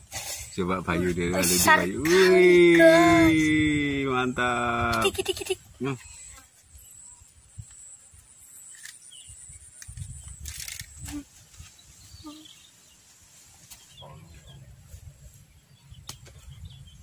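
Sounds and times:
wind rumble on microphone: 1.7 - 5.8, 9.2 - 12.3, 14.0 - 17.0
faint bird chirps: 6.0 - 14.7.

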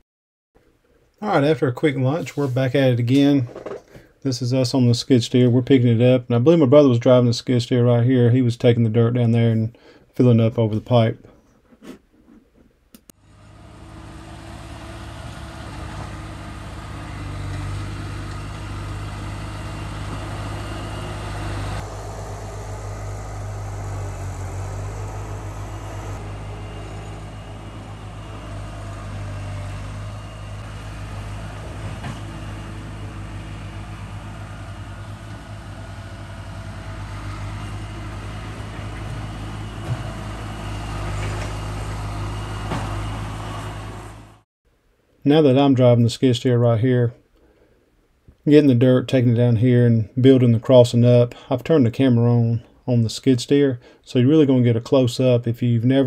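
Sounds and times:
loader engine droning: 13.1 - 44.4.

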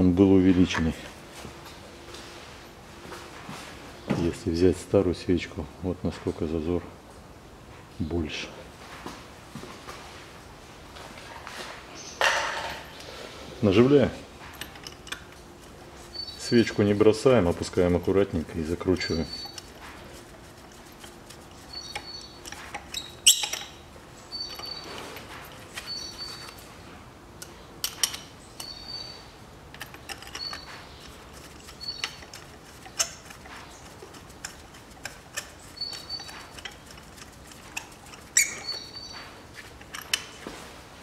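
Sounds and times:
socket tool squeaking: 14.6 - 26.7, 27.8 - 40.4
metal clicks and taps: 27.4 - 28.8, 39.8 - 40.3.

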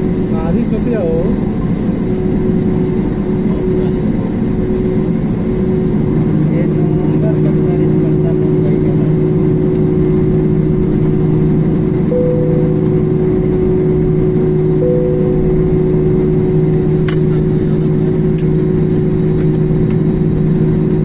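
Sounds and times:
airliner cabin engine noise: 0.0 - 21.0
brief higher tones: 12.1 - 14.0, 14.6 - 16.9.

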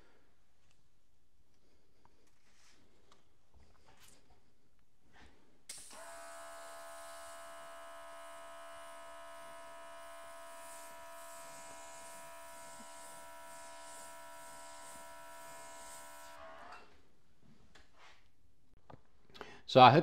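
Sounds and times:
airbrush spraying hiss: 5.7 - 16.4
compressor motor whine: 5.7 - 16.9.

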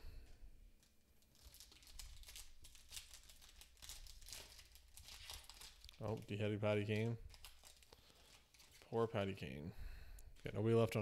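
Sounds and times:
foil wrapper crinkling and tearing: 1.2 - 9.0.

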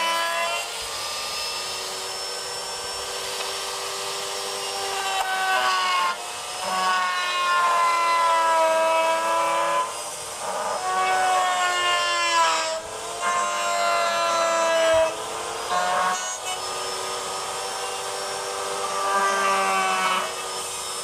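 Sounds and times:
power tool motor whining: 0.0 - 21.0.

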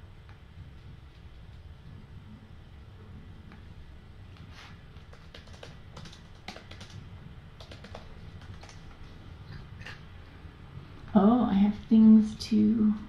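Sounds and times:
low room hum: 0.0 - 13.0
computer keyboard typing: 5.0 - 7.0, 7.6 - 9.0.

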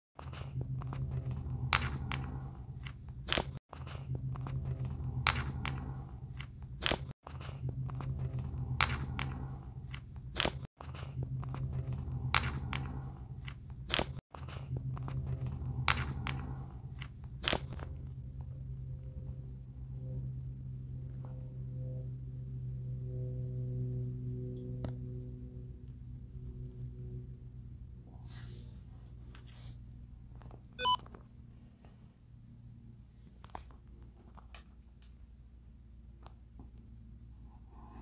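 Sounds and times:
low hum: 17.8 - 28.2.

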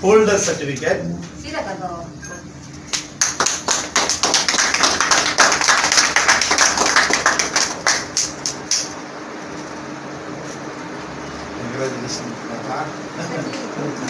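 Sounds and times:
people clapping: 2.9 - 9.0.

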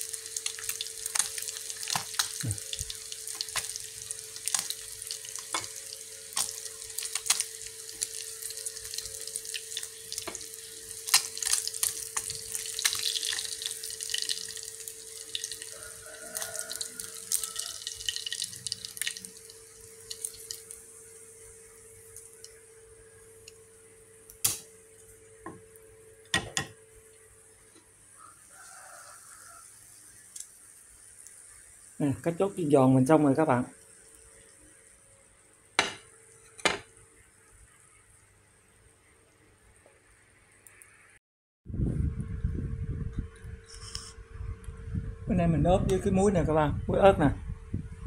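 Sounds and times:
oil crackling and popping: 0.0 - 25.9
fish sizzling in hot oil: 0.0 - 38.2.

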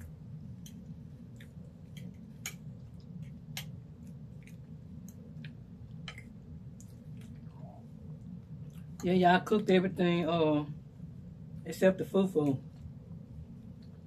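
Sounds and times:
low hum: 0.0 - 14.0
chewing food: 0.5 - 9.1.

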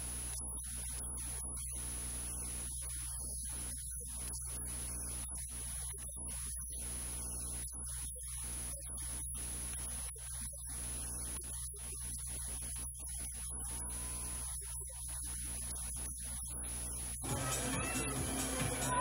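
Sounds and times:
electrical mains hum: 0.0 - 19.0
static hiss: 0.0 - 19.0
high-pitched whine: 13.2 - 19.0.

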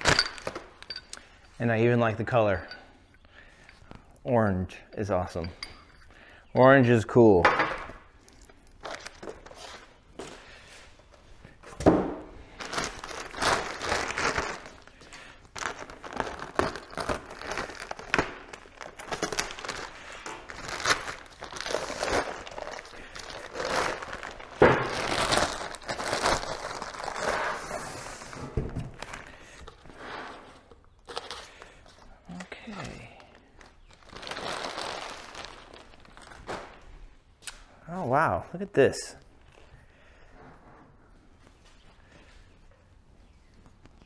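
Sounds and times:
plastic and paper crinkling: 8.2 - 10.6, 12.5 - 37.0.

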